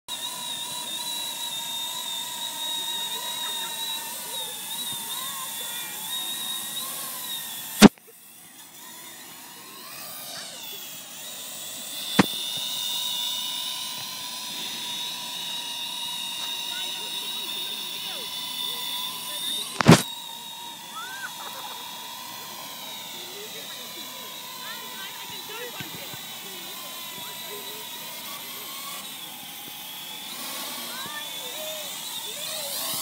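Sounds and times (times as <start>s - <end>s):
quadcopter propellers whining: 0.1s - 33.0s
sharp click: 19.8s - 20.0s.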